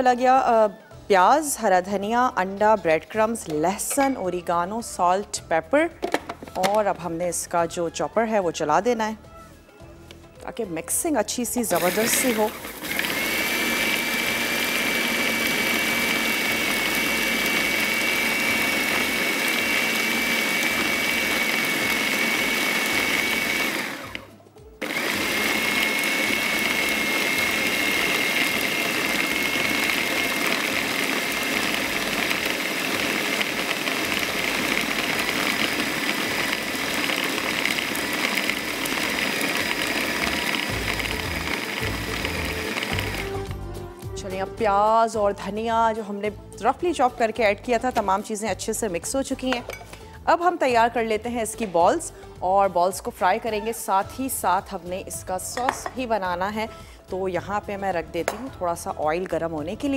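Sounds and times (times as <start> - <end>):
food processor motor whining: 11.7 - 43.7.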